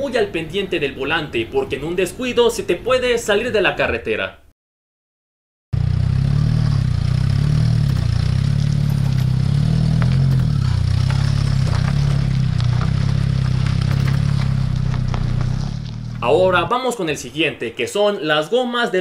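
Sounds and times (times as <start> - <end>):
car engine running: 5.8 - 16.7
suspension knocking and clatter: 6.1 - 16.2.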